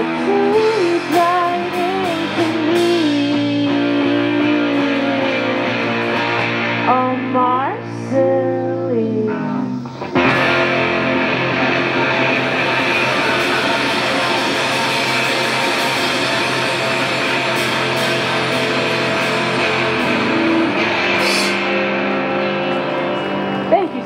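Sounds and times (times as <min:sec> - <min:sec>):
rock band playing loudly: 0:00.0 - 0:24.0
cymbal crashes: 0:12.6 - 0:21.8.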